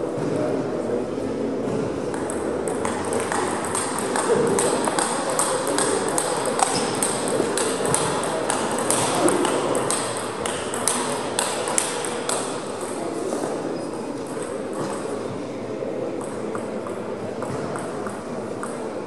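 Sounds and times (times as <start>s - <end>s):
steady hum of large hall: 0.0s - 19.0s
table tennis balls clicking: 2.0s - 13.3s, 16.2s - 18.9s.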